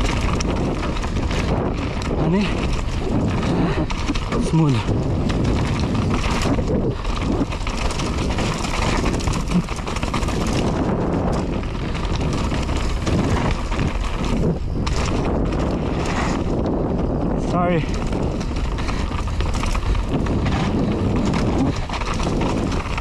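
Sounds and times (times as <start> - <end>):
bike clattering over ground: 0.0 - 16.6
bike tyre noise: 0.0 - 23.0
wind rushing over microphone: 0.0 - 23.0.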